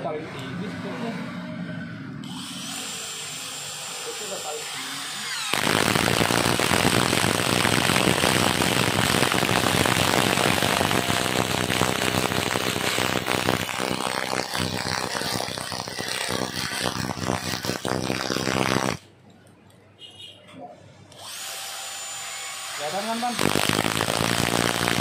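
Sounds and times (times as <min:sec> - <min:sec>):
impact drivers driving screws into wood: 0:05.3 - 0:19.0, 0:23.3 - 0:25.0.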